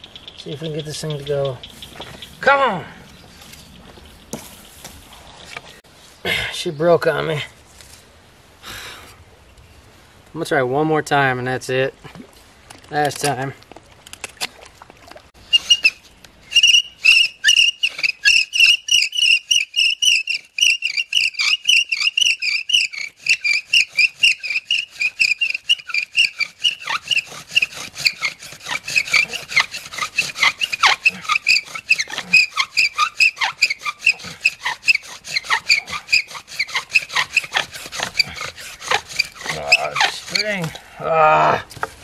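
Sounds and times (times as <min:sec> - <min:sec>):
bow drill spindle squeaking: 0:15.4 - 0:40.8.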